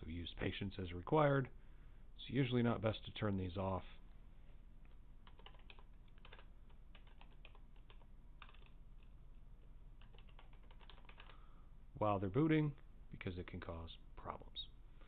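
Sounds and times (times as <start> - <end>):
computer keyboard typing: 5.2 - 11.4.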